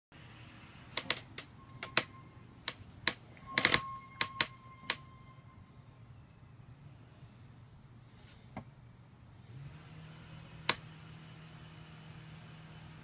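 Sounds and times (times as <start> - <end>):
sharp clicks: 0.9 - 5.0
faint ringing tone: 1.6 - 2.6, 3.4 - 7.4.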